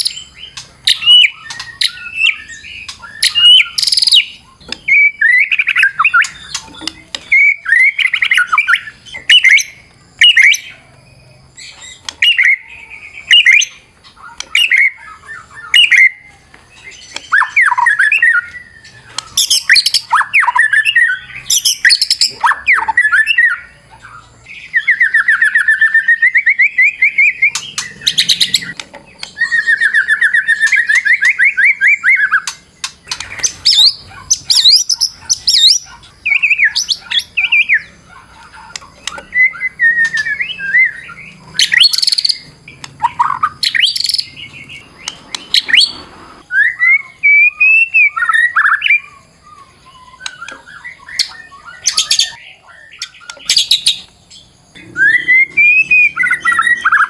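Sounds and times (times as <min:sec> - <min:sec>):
songbird singing whistled phrases: 0:00.0 - 0:57.0
bird's rapid trills: 0:25.0 - 0:46.5.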